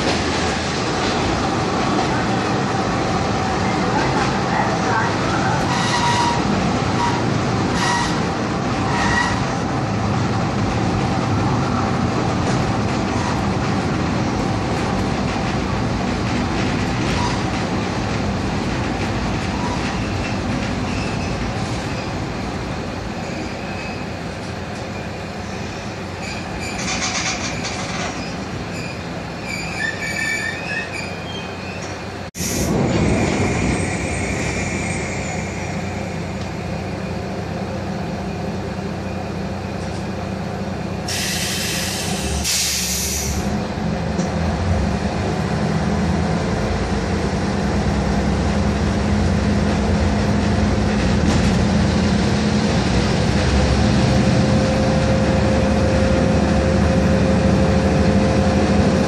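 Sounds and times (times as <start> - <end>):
train running noise: 0.0 - 59.0
wheel squeals: 25.4 - 32.0
diesel engine: 31.5 - 59.0.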